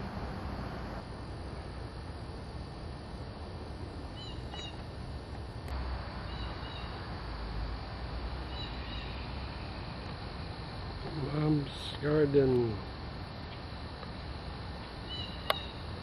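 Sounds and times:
background hiss: 0.0s - 16.0s
bird chirping double notes: 4.2s - 4.8s, 6.2s - 7.0s, 8.4s - 9.4s, 15.0s - 15.8s.

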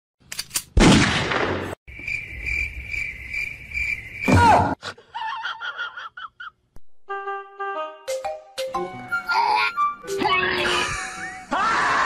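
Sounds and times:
cricket chirping: 1.9s - 4.7s.

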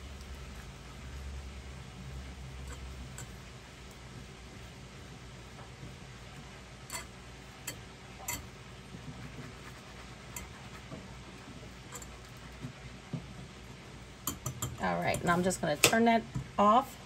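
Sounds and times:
steady low hum: 0.0s - 17.0s
whisk stirring sauce: 8.3s - 12.6s.

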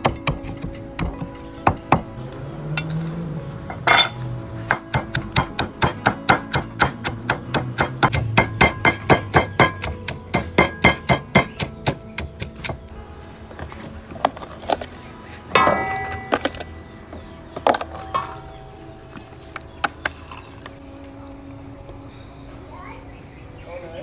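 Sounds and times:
stone pestle pounding in mortar: 4.7s - 12.8s.

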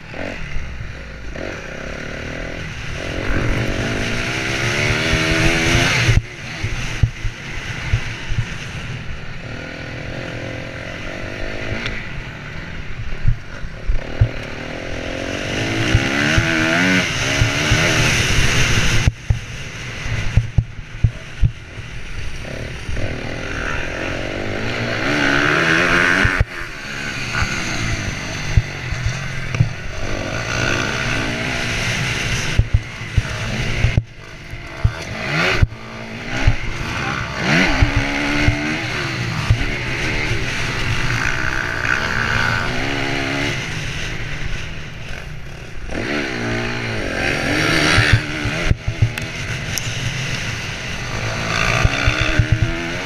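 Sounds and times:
motorcycle engine revving hard: 0.0s - 53.0s.

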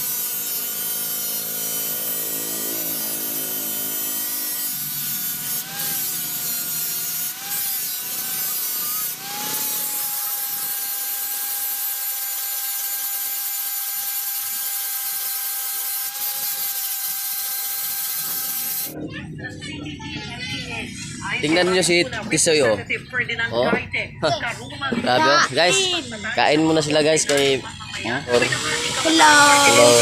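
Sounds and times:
power tool grinding metal: 0.0s - 19.0s, 26.4s - 30.0s.

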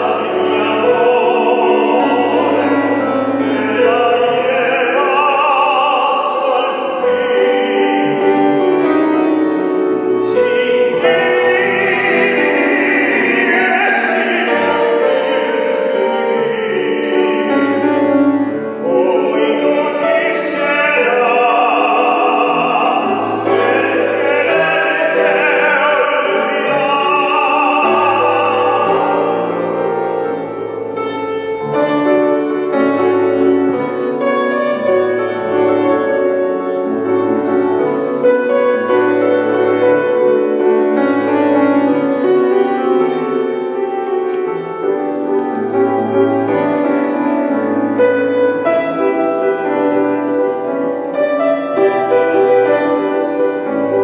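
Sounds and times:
man singing operatically: 0.0s - 30.6s
grand piano: 0.0s - 54.0s.

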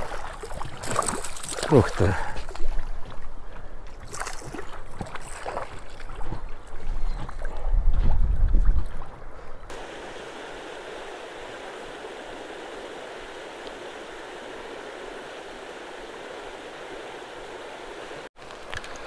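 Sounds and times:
stream water rushing: 0.0s - 2.4s, 9.7s - 19.0s.

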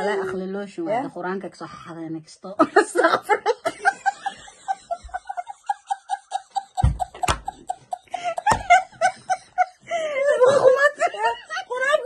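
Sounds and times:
women laughing hard: 2.8s - 12.0s
dull thumps: 6.7s - 7.8s, 8.4s - 8.9s.

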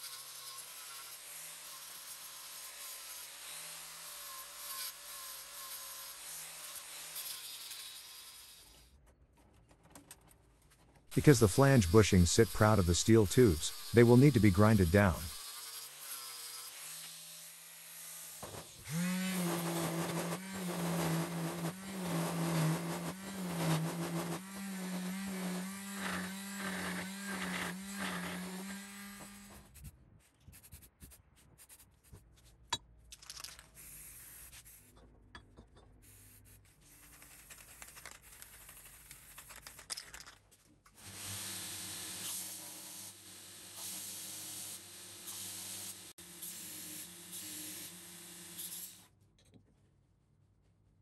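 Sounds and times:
angle grinder grinding steel: 11.1s - 16.8s, 18.8s - 29.6s.

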